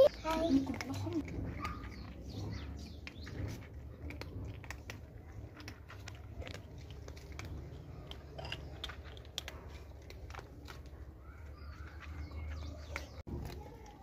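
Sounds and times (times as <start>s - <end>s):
kittens crunching dry kibble: 0.0s - 14.0s.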